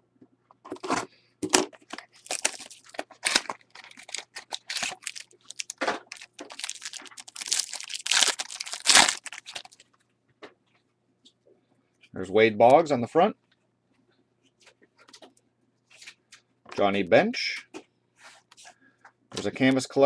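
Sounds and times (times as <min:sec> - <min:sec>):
card pack wrapping tearing: 0:02.0 - 0:09.8.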